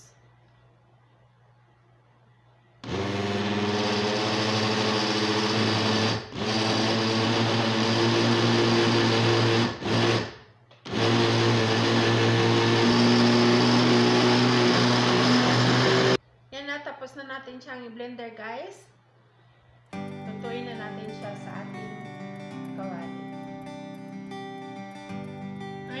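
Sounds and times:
blender motor whine: 2.8 - 16.2.

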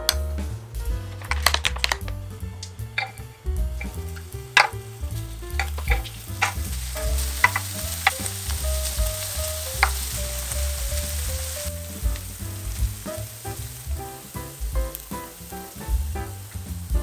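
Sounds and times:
wooden spoon tapping pan: 1.2 - 13.8
cheese sizzling in a pan: 1.2 - 17.0.

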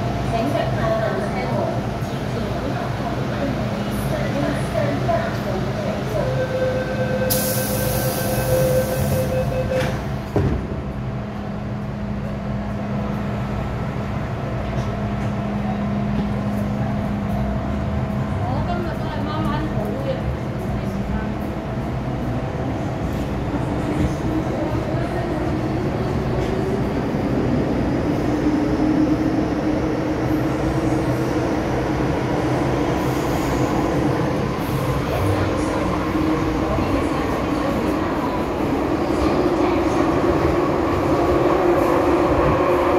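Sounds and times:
rumble of wheels on rail: 0.0 - 42.9
thump: 10.3 - 10.8.

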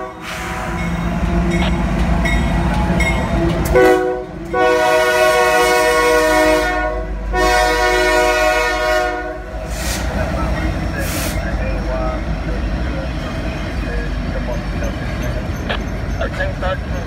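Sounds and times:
locomotive air horn blasts: 0.0 - 1.8, 3.6 - 9.5
diesel locomotives rumbling: 0.0 - 17.0.

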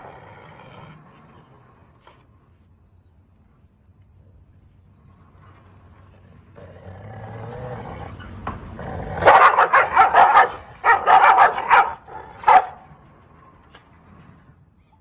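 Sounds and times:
dogs growling: 0.0 - 2.3, 6.4 - 12.8
dogs barking: 9.2 - 12.9.

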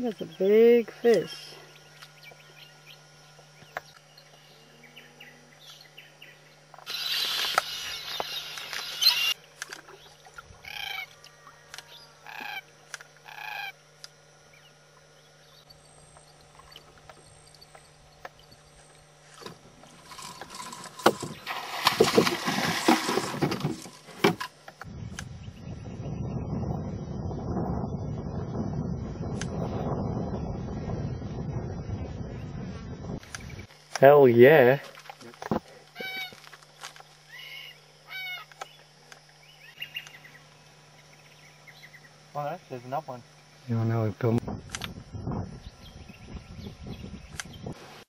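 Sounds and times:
cockatoo calling harshly: 6.9 - 9.4, 10.6 - 11.2, 11.9 - 13.8, 35.9 - 36.5, 37.3 - 38.6
rough rustling with knocks: 19.2 - 24.6.

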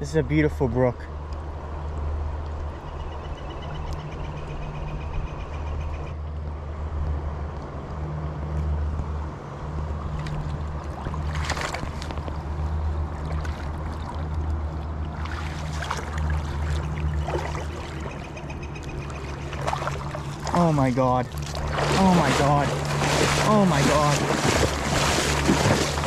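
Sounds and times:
rushing stream: 9.7 - 26.0
fish thrashing in water: 10.1 - 26.0.

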